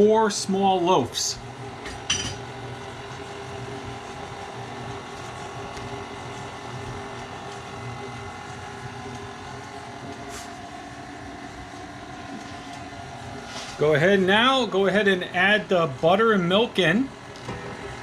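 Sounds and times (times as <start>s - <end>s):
stand mixer motor humming: 1.4s - 14.9s.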